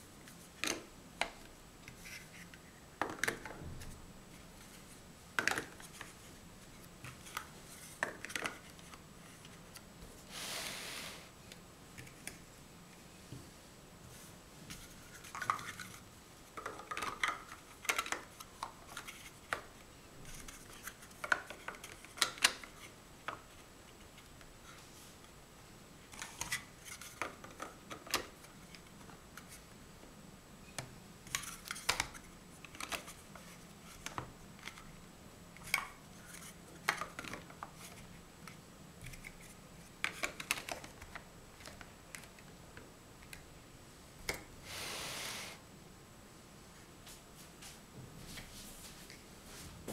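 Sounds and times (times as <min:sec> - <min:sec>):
plastic blocks clicking together: 0:16.6 - 0:19.6, 0:40.0 - 0:42.4.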